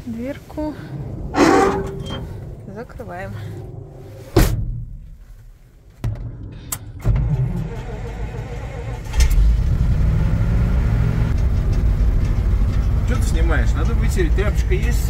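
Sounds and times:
truck engine cranking and running: 0:06.0 - 0:15.0.

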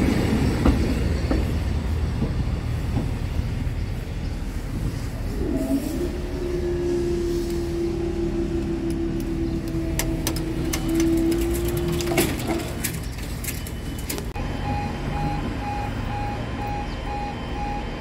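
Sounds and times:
train droning: 0:00.0 - 0:18.0
level crossing warning alarm: 0:13.4 - 0:18.0.

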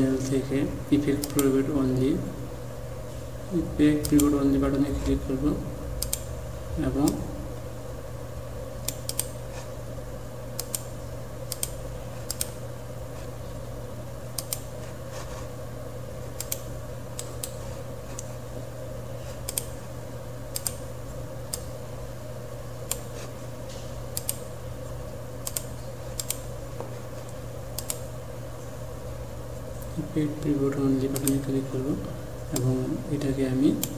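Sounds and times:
low electrical hum: 0:00.0 - 0:33.9.

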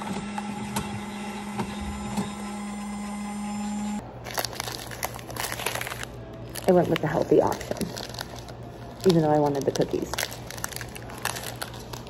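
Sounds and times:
coffee machine humming: 0:00.0 - 0:12.0
plastic wrapper crinkling: 0:04.2 - 0:12.0.

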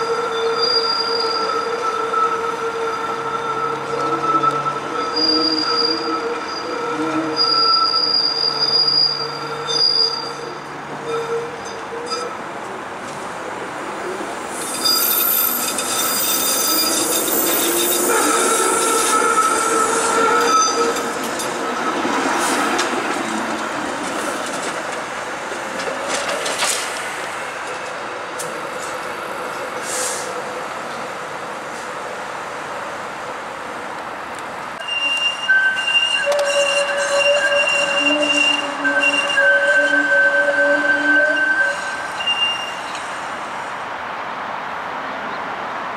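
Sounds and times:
streetcar wheels squealing: 0:00.0 - 0:12.5, 0:14.5 - 0:24.9, 0:34.8 - 0:43.2
wheels rumbling on rails: 0:01.4 - 0:43.7.

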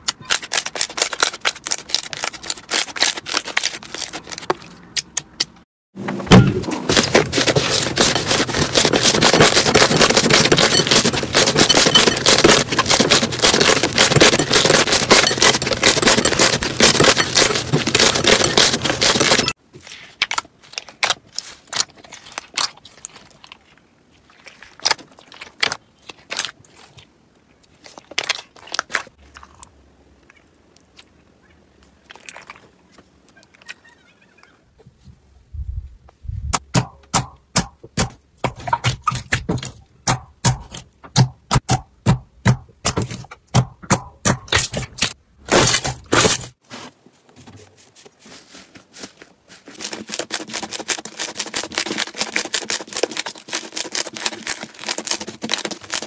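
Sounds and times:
wet slime squelches: 0:07.0 - 0:34.4.

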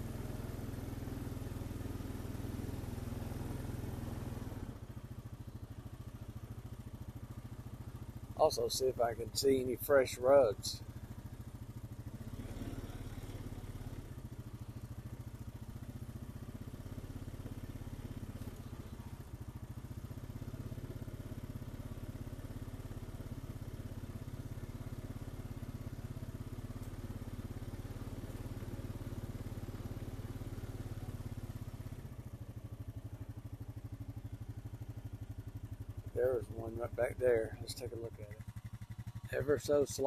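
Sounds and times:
atv engine running: 0:00.0 - 0:40.0.

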